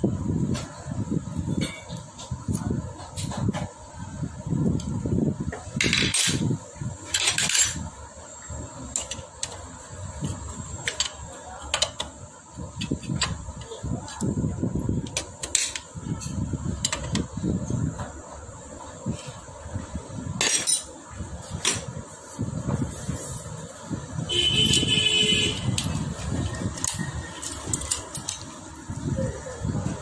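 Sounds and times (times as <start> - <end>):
metal tools clinking: 7.1 - 7.9, 26.7 - 28.6.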